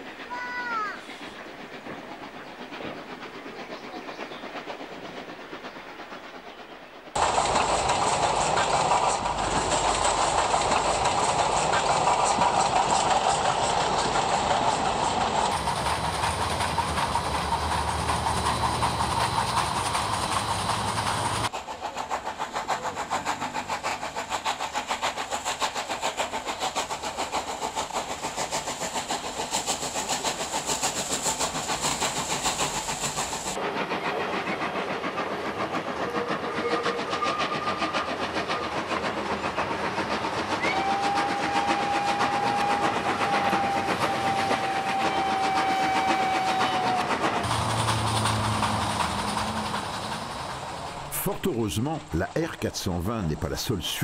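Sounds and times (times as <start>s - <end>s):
steam locomotive exhaust beats: 0.0s - 54.0s
steam whistle blast: 40.6s - 47.7s.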